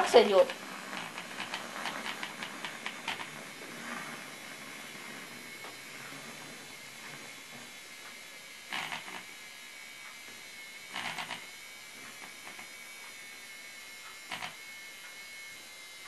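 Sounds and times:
clatter bursts: 0.0 - 7.6
milk frother buzzing whine: 0.0 - 16.0.

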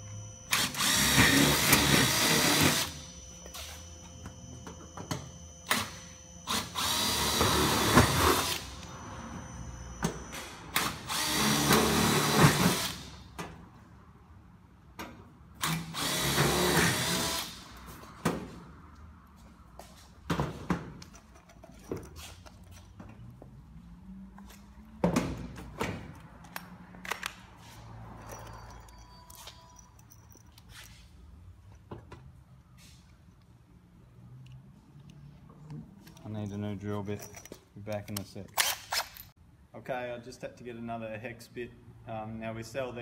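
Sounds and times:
cordless drill driving screws: 0.4 - 3.9, 5.6 - 9.0, 10.0 - 13.2, 15.6 - 17.6.

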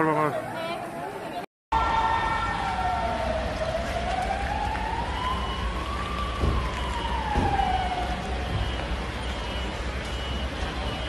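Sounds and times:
street noise rumble: 0.0 - 11.0
siren wailing: 0.4 - 11.0.

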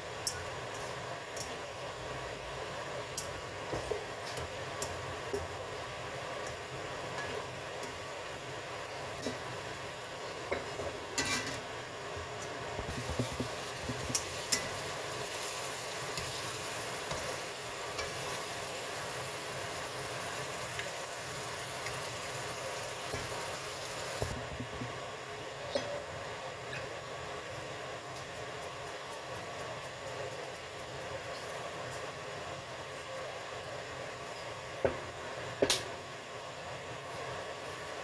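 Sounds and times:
meat and vegetables sizzling in wok: 0.0 - 38.0
spatula stirring and scraping: 10.4 - 11.7.

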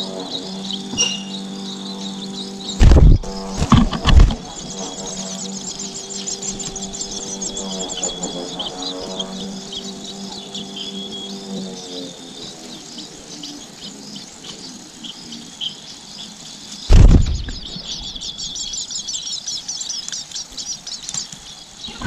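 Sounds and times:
nestlings chirping: 0.0 - 22.0
loud thump: 2.8 - 4.4, 16.9 - 17.8.

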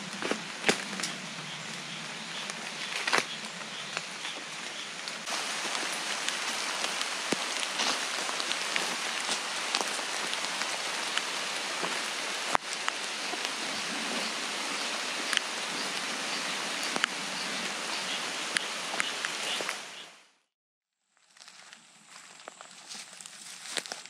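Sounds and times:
rain falling on leaves: 0.0 - 20.0.

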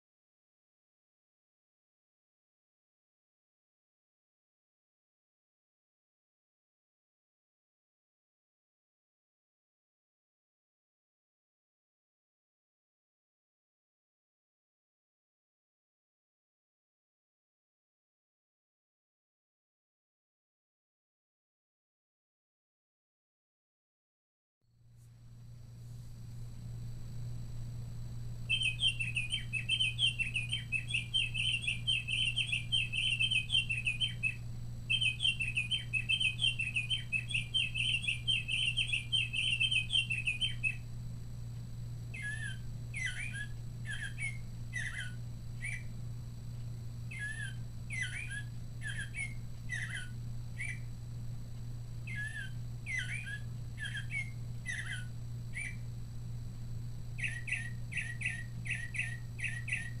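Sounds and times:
warbling birdsong from speaker: 28.4 - 40.9, 42.1 - 46.1, 47.0 - 51.1, 51.9 - 56.0, 57.0 - 60.0
rapid repeated bird notes: 28.4 - 56.1, 57.0 - 60.0
birdsong with falling notes: 28.5 - 40.8, 42.1 - 45.9, 47.1 - 50.9, 52.1 - 55.8, 57.2 - 60.0.

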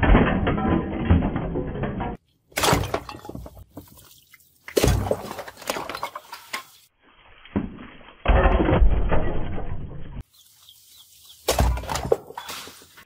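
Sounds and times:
clattering shards: 0.0 - 3.9
clay pots shattering: 0.0 - 4.0, 4.7 - 6.7, 11.5 - 12.3
splashing water: 3.7 - 6.5.

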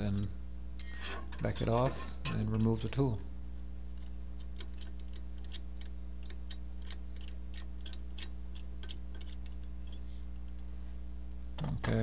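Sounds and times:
steady low hum: 0.0 - 12.0
small metallic clicks: 4.0 - 10.7.

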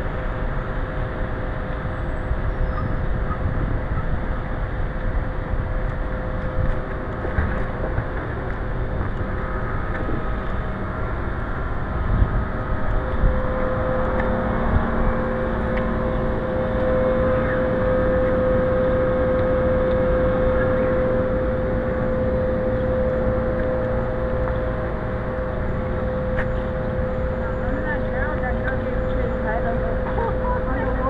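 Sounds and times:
low rumbling noise: 0.0 - 31.0
mechanical droning hum: 0.0 - 31.0.

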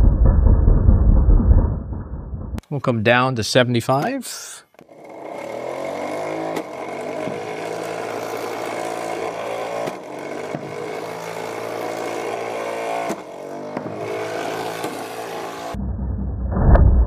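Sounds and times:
flywheel motor whining: 4.8 - 15.8
sharp knocks of balls launching: 9.6 - 11.5, 12.9 - 15.2.

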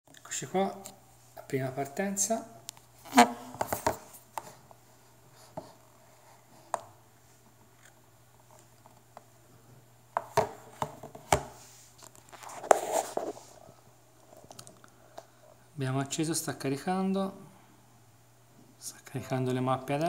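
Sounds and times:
rubbing and rustling: 10.6 - 13.7.

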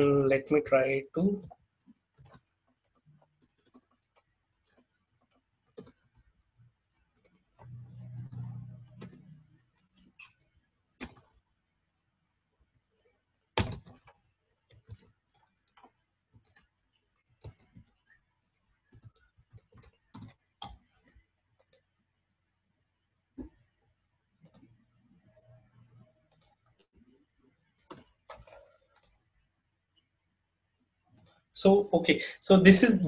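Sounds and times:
keyboard typing: 1.3 - 6.3, 7.0 - 11.5, 13.5 - 22.0, 24.4 - 29.3, 31.1 - 31.4.

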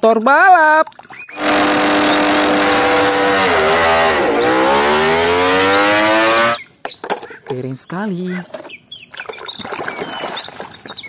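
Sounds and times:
motorcycle engine revving high: 1.4 - 6.6.

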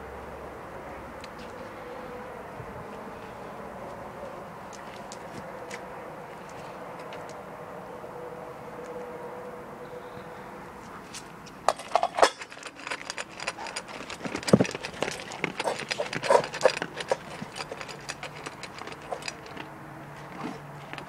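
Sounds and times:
dog crunching dry kibble: 11.2 - 21.0
kibble clattering on metal bowl: 11.7 - 19.8.

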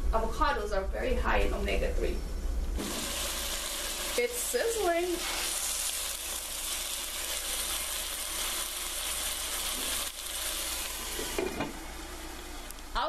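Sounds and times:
chicken sizzling in oil: 2.8 - 13.0.

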